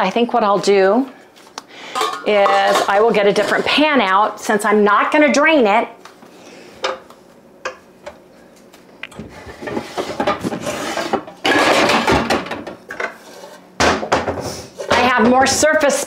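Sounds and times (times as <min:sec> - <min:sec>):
pots and pans clattering: 0:01.9 - 0:03.9, 0:09.3 - 0:15.7.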